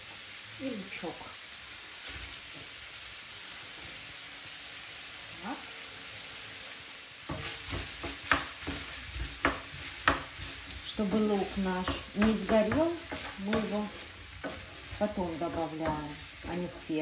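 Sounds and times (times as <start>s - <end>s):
food sizzling in a frying pan: 0.0s - 17.0s
utensil scraping a pan: 7.3s - 17.0s.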